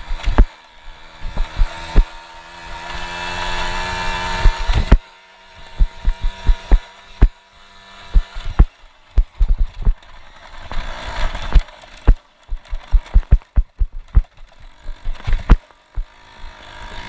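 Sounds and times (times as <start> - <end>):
knocks over rough ground: 0.0 - 0.5, 1.2 - 2.1, 4.4 - 5.0, 5.7 - 7.4, 8.1 - 10.0, 11.2 - 16.1
moped engine revving: 0.0 - 17.0.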